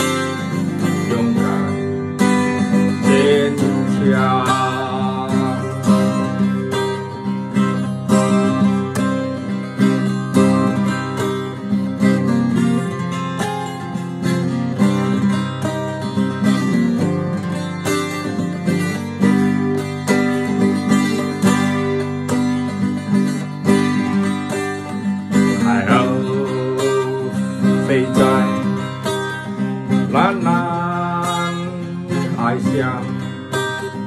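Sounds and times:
man singing wavering notes: 0:00.0 - 0:06.9, 0:25.3 - 0:34.0
acoustic guitar strumming: 0:00.0 - 0:34.0.

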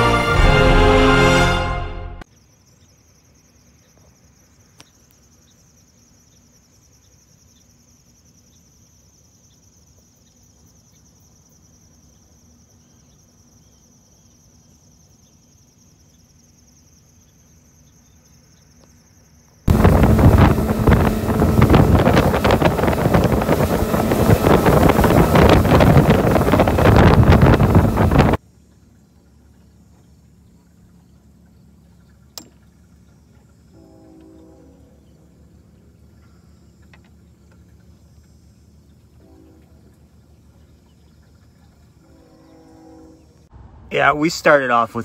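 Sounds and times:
boat running fast: 0:19.7 - 0:28.4
wind buffeting microphone: 0:19.7 - 0:28.4
low hum: 0:19.7 - 0:45.0.

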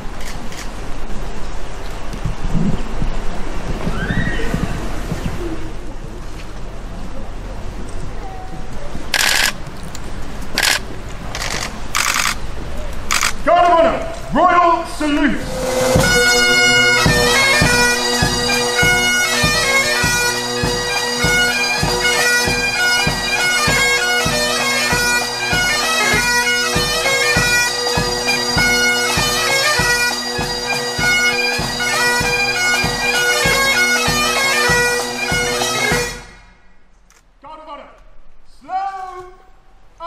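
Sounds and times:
drum beat: 0:15.4 - 0:36.4
bagpipes with drones: 0:15.4 - 0:36.5.

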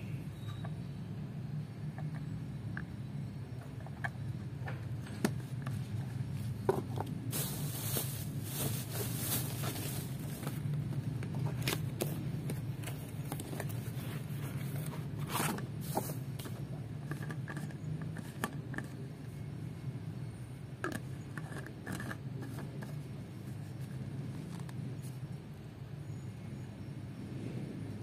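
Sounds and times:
steady low hum: 0:00.0 - 0:28.0
plastic wrapping crinkling: 0:07.3 - 0:10.6.

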